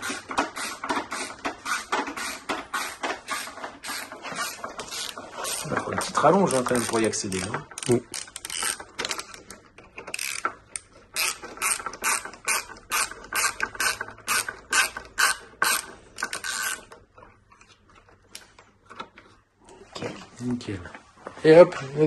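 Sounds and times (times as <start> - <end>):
ratchet wrench clicking: 6.5 - 9.4, 10.1 - 16.9.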